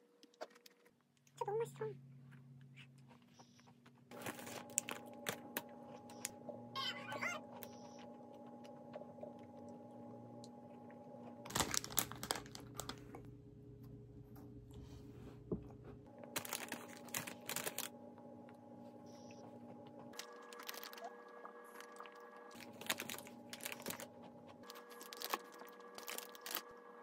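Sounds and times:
faint steady hum: 0.0 - 27.0
cookie crunching: 0.2 - 1.4, 2.2 - 13.3, 16.1 - 18.6, 19.3 - 27.0
plastic bag crinkling: 4.1 - 5.6, 11.4 - 13.2, 16.2 - 18.0, 20.2 - 21.2, 21.8 - 26.8.

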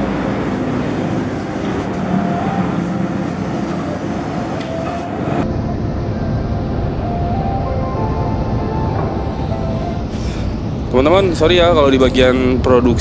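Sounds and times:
paint spray gun hissing: 0.0 - 5.4
air compressor running: 0.0 - 5.5.

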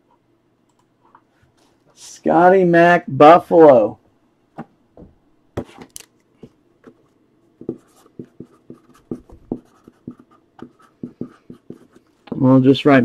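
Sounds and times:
marker writing on cardboard: 7.6 - 12.1.

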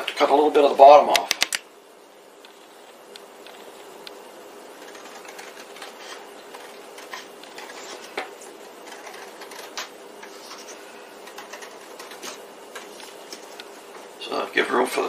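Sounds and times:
scissors snipping paper: 4.8 - 8.1, 8.8 - 10.5, 11.2 - 12.4.

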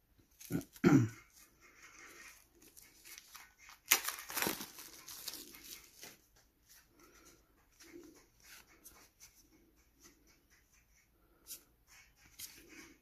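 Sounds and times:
plastic rustling: 0.2 - 8.6
plastic wrap tearing and crackling: 2.6 - 6.1.

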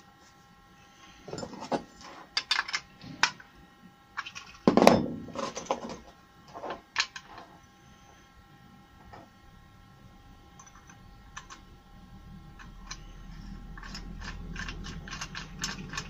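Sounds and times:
metal parts clicking and scraping: 1.3 - 3.5, 4.2 - 7.6, 10.6 - 11.7, 12.5 - 16.0.

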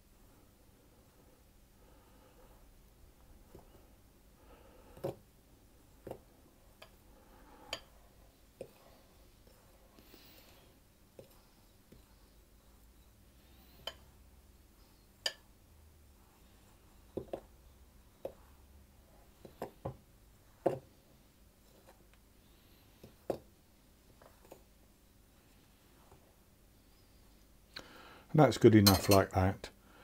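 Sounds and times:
utensil clinking against a bowl: 28.8 - 29.4.

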